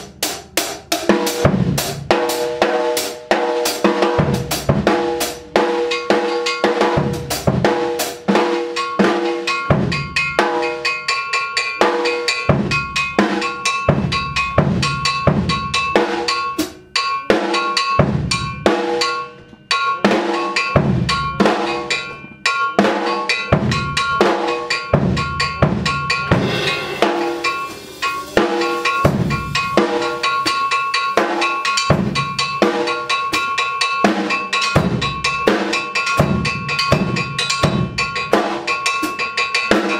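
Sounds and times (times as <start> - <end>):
drum kit groove: 0.0 - 39.9
metal tailpipe struck ringing: 23.3 - 38.8.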